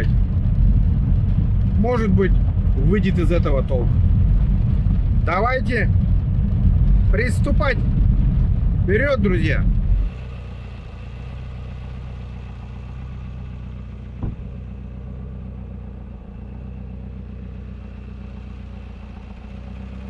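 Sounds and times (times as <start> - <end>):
engine idling: 0.0 - 20.0
brief knock: 14.2 - 14.5.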